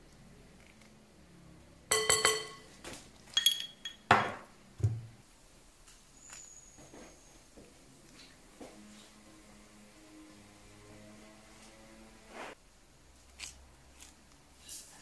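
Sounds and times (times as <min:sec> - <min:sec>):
glass knock and thud: 0:01.9 - 0:02.6, 0:03.6 - 0:05.1
glasses clinking: 0:01.9 - 0:02.7, 0:03.3 - 0:04.4.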